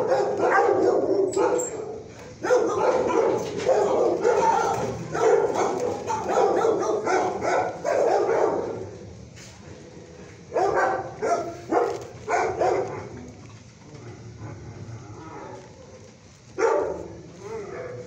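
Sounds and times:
dog barking: 0:00.0 - 0:08.9, 0:10.5 - 0:13.2, 0:16.6 - 0:18.0.

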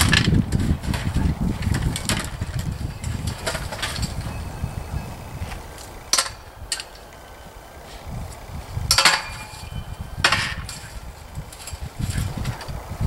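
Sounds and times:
metal swing frame clanking: 0:00.0 - 0:13.0.

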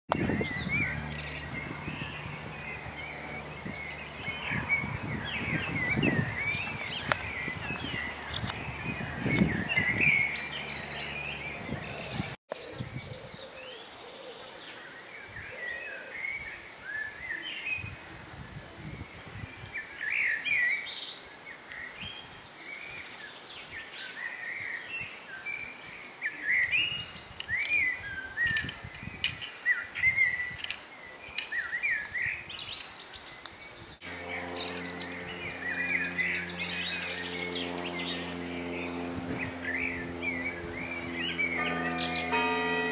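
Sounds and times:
birds singing: 0:00.1 - 0:42.9
low steady tones: 0:34.0 - 0:42.9.

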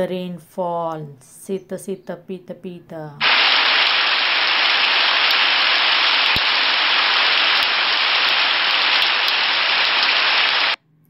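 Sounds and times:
heavy rainfall hiss: 0:03.2 - 0:10.8.

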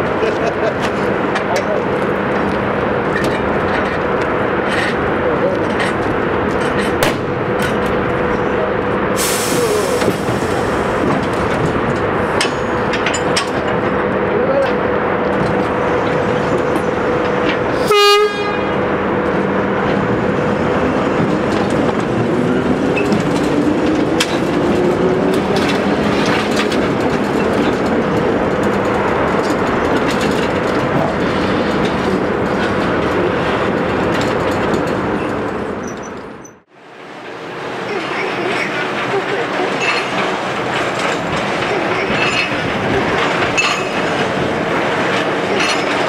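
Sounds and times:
locomotive motor hum and rumble: 0:00.0 - 0:46.0
locomotive horn blast: 0:17.7 - 0:18.9
wheels clicking over rails: 0:20.8 - 0:36.7, 0:37.3 - 0:46.0.

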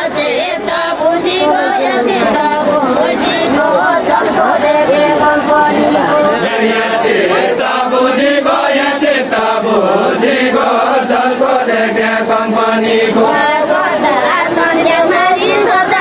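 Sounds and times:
voices singing folk song: 0:00.0 - 0:16.0.

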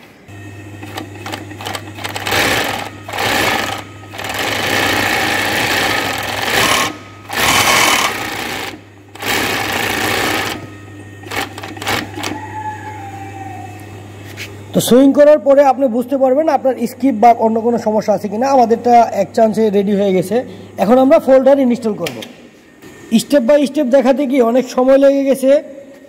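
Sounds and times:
motor humming: 0:00.2 - 0:23.2
sewing machine stitching: 0:00.9 - 0:12.4.

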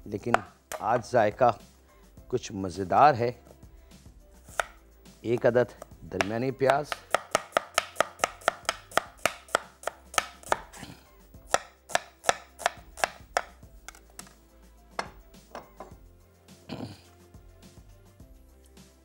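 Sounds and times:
knife chopping on wooden board: 0:00.2 - 0:01.1, 0:04.5 - 0:10.8, 0:11.4 - 0:13.6.

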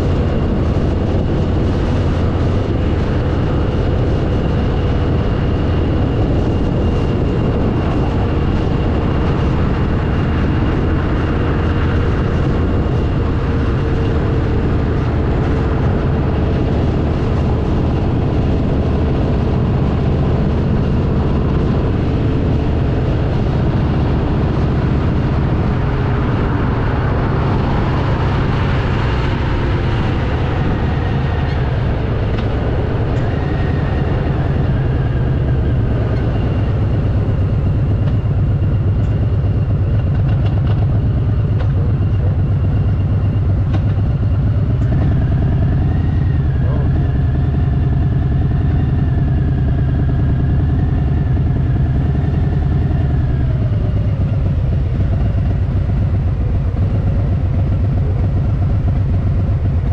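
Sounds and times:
motorcycle engine rumbling: 0:00.0 - 0:59.9.

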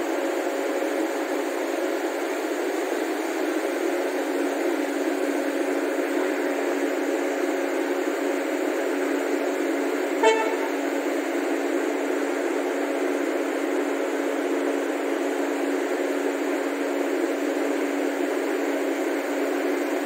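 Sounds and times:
locomotive air horn toot: 0:10.2 - 0:11.1.

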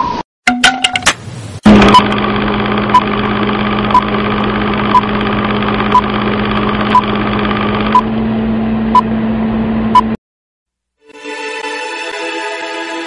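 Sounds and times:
steady mechanical hum: 0:01.2 - 0:10.2.

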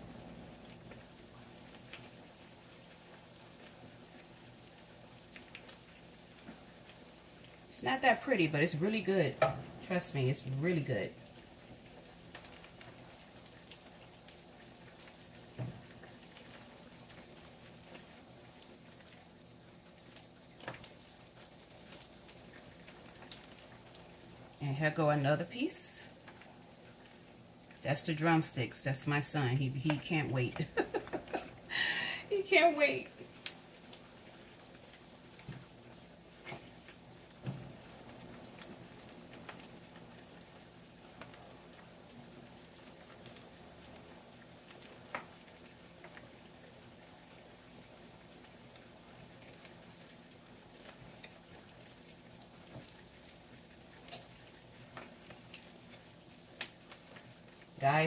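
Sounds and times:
wings sizzling in hot oil: 0:00.0 - 0:58.0.

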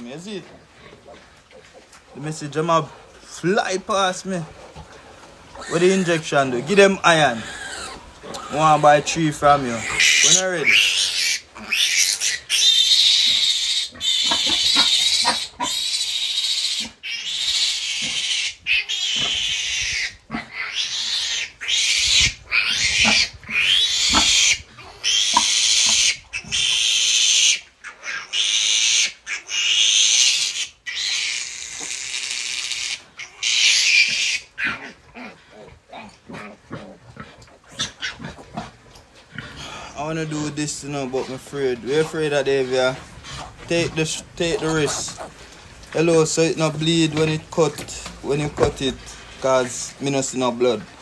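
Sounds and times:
piglet squealing: 0:05.6 - 0:37.0, 0:37.7 - 0:38.4.

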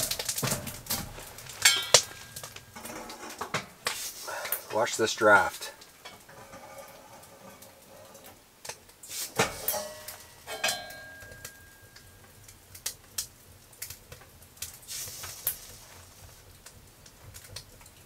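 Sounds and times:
metal clinks and scrapes: 0:00.0 - 0:04.2, 0:06.0 - 0:08.4, 0:09.2 - 0:11.8
ringing metal strike: 0:01.6 - 0:02.4, 0:09.6 - 0:12.2.

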